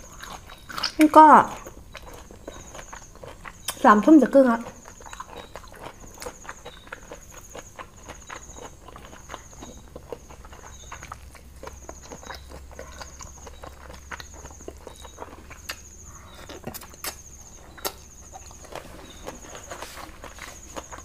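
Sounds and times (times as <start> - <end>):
wet chewing: 0.0 - 21.0
faint high chirp: 1.9 - 4.0, 4.7 - 21.0
lip smacks and mouth clicks: 10.1 - 18.8.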